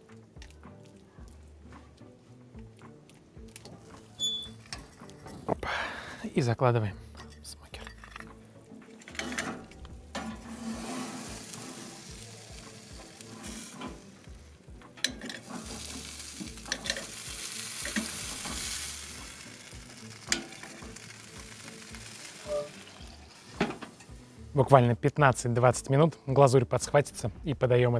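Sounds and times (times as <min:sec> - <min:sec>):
ribs sizzling on a grate: 0:09.2 - 0:24.6.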